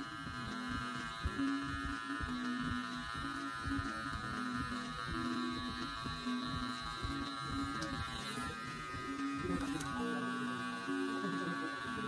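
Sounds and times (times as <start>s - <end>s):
electric hair clippers buzzing: 0.0s - 12.0s.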